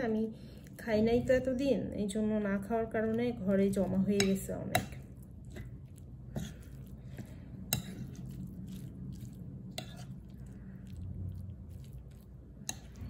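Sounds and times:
soft squishy stirring: 0.0 - 13.0.

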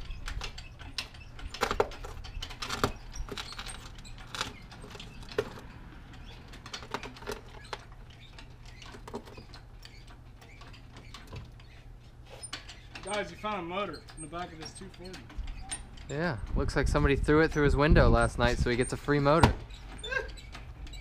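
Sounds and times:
metallic clinks and rattles: 0.0 - 16.5.

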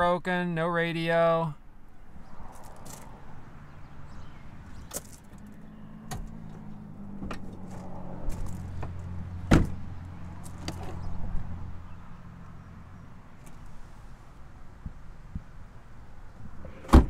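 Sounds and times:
car door clicks and knocks: 9.5 - 9.8
car door shutting hard: 9.5 - 9.8, 16.6 - 17.0.

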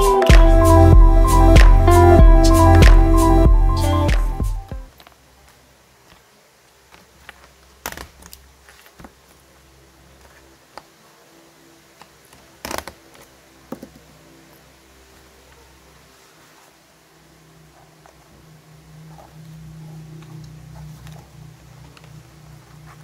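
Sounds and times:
paper rustling: 4.9 - 9.5, 10.1 - 11.1.

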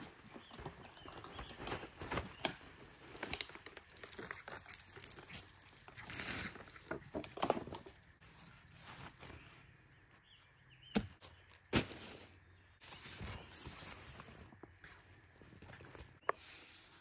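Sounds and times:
sleeping bag rustling: 0.0 - 9.6.

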